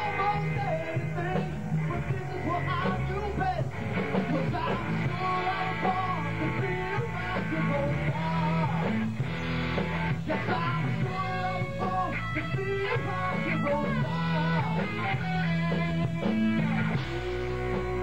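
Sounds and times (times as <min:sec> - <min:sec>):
person singing: 0:00.0 - 0:09.1, 0:10.2 - 0:18.0
rock band playing: 0:00.0 - 0:18.0.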